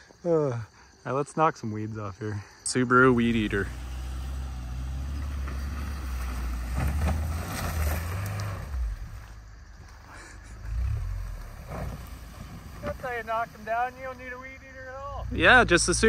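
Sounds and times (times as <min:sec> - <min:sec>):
car engine under load: 0:03.1 - 0:13.7
weeds swishing against car: 0:03.5 - 0:14.4.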